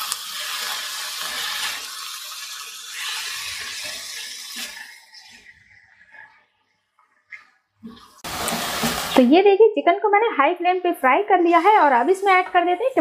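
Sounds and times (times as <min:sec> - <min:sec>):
chicken sizzling in hot oil: 0:00.0 - 0:05.8, 0:08.2 - 0:09.3.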